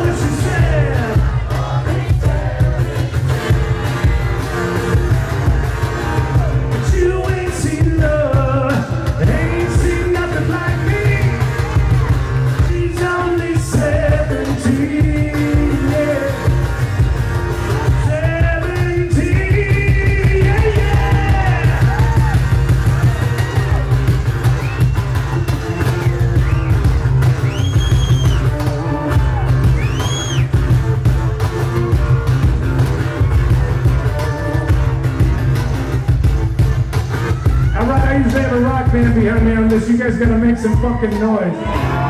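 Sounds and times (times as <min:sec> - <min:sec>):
man singing: 0:00.0 - 0:04.2, 0:06.3 - 0:16.7, 0:17.8 - 0:21.8, 0:37.6 - 0:42.0
strummed acoustic-electric guitar: 0:00.0 - 0:42.0.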